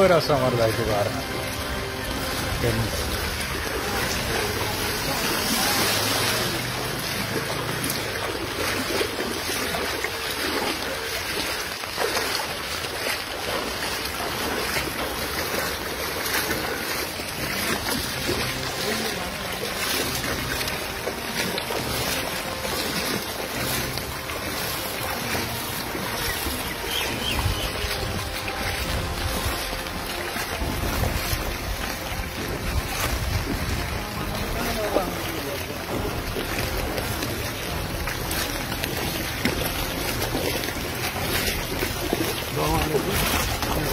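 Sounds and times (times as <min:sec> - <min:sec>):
wind and water rushing: 0:00.0 - 0:43.9
wind buffeting microphone: 0:30.6 - 0:34.6.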